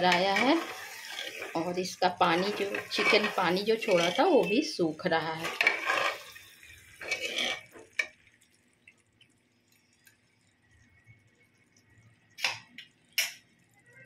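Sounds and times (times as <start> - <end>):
metal spoon scraping a pot: 0.0 - 4.5, 5.4 - 6.4, 7.0 - 7.8.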